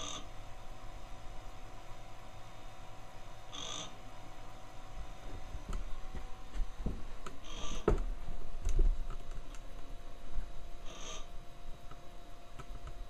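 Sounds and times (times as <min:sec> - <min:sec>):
dull thumps: 0:05.2 - 0:07.1.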